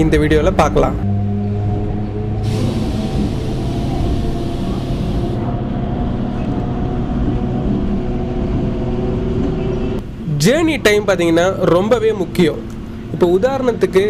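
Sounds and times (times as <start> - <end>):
electric train rumbling: 1.0 - 13.8
high hiss: 2.4 - 5.4
motor hum of even tones: 2.4 - 5.5.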